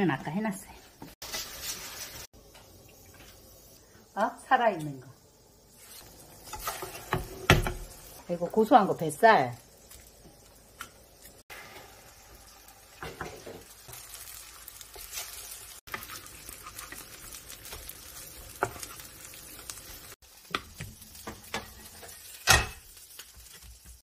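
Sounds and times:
fish sizzling in oil: 0.0s - 24.0s
wooden spatula scraping and tapping: 6.4s - 7.8s, 15.9s - 19.1s, 20.4s - 22.4s.

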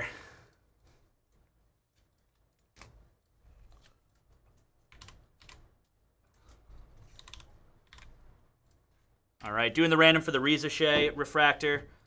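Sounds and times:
computer keyboard typing: 3.7s - 8.8s.

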